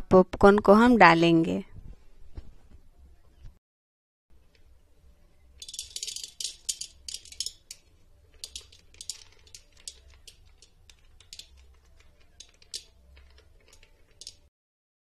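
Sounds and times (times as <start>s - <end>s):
popcorn packet crinkling: 5.6s - 14.5s.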